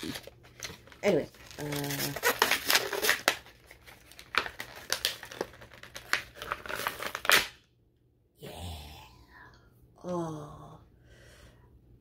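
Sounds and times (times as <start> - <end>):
packaging crinkling and rustling: 0.0 - 7.6.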